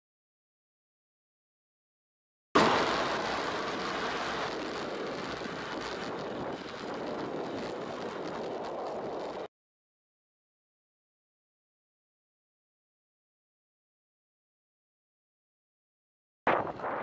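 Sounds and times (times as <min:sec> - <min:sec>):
road noise: 0:02.6 - 0:09.5
traffic: 0:02.6 - 0:09.5
wind rushing on microphone: 0:02.6 - 0:09.5.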